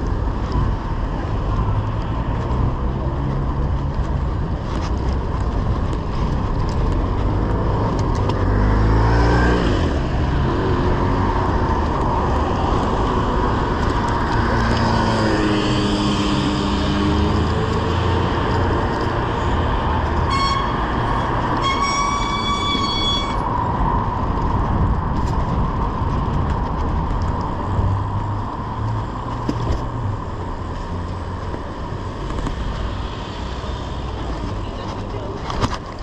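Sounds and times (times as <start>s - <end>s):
wind and road rumble: 0.0s - 36.0s
vehicle horn tooting: 20.2s - 23.5s.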